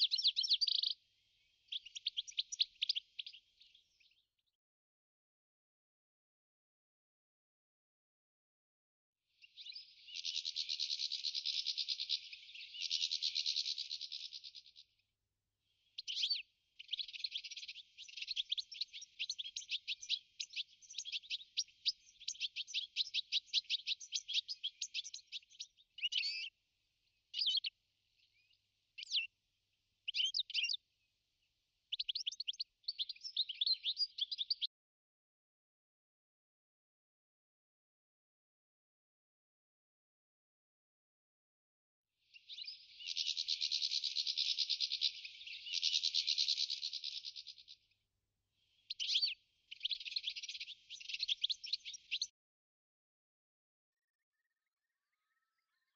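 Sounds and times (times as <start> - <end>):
finch singing twittering: 0.0 - 1.0, 15.9 - 26.5, 30.1 - 30.8, 31.9 - 34.7, 42.4 - 47.7, 48.8 - 52.3.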